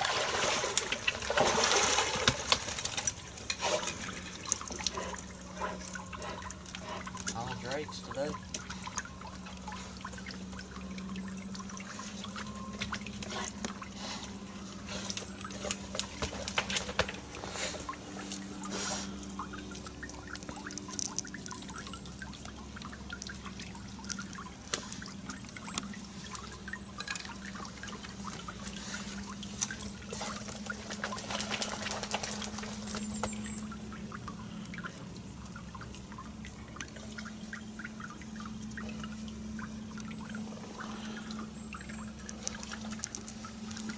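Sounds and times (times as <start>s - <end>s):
steady low hum: 0.0s - 43.9s
swamp water splashing and dripping: 0.0s - 43.9s.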